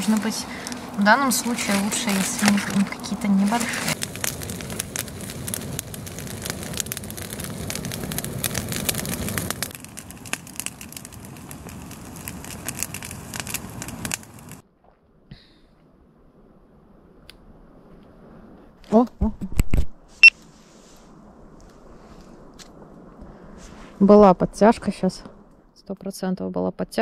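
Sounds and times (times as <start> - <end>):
dry twigs crackling on newspaper: 0.0 - 14.6.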